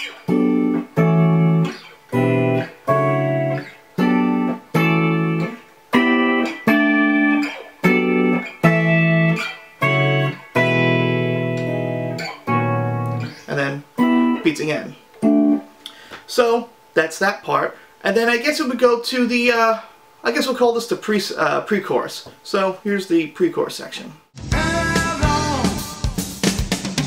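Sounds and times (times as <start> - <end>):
clean electric guitar chords: 0.0 - 15.7, 24.4 - 26.4.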